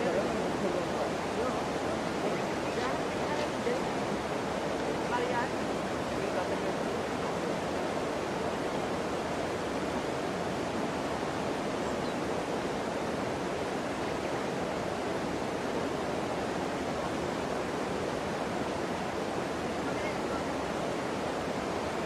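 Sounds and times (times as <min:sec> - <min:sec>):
river water rushing over stones: 0:00.0 - 0:22.0.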